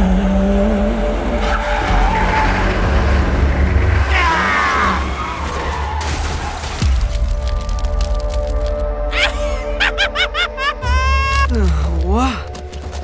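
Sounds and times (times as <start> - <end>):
car engine rumble: 0.0 - 6.7
tyres skidding and screeching: 0.6 - 7.2.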